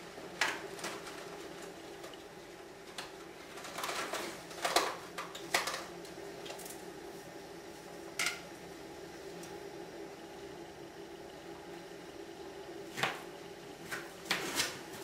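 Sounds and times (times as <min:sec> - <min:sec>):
steady low hum: 0:00.0 - 0:15.0
clicks and rustles of handling: 0:00.4 - 0:06.8.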